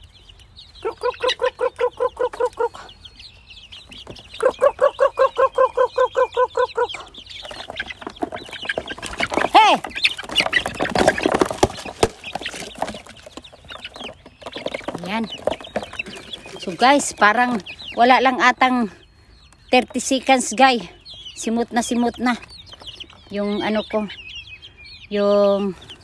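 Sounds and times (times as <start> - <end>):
chicks clucking and peeping: 0.0 - 26.0
person calling to chickens: 0.7 - 3.0, 4.2 - 7.5, 9.2 - 10.2, 14.9 - 15.4, 16.1 - 26.0.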